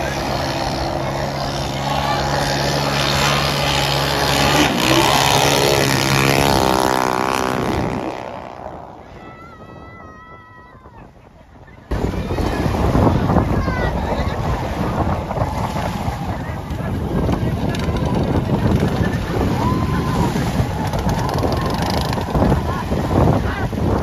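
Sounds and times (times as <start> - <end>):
motorized surfboard engine running: 0.0 - 8.8.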